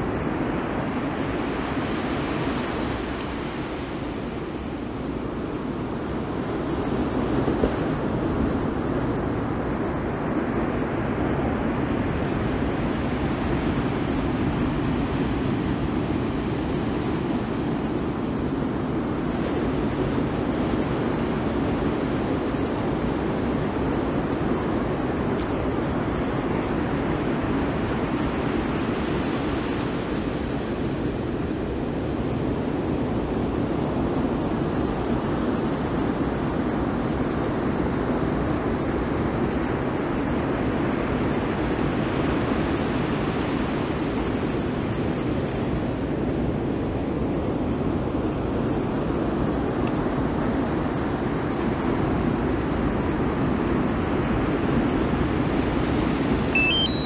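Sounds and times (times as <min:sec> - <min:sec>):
ocean surf breaking: 0:55.4 - 0:57.0
short electronic beep: 0:56.6 - 0:57.0.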